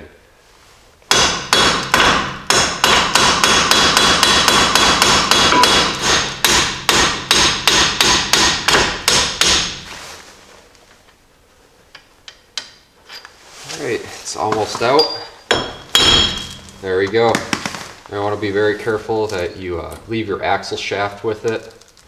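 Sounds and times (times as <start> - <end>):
hammer striking metal bolt: 1.1 - 9.8, 15.5 - 16.8.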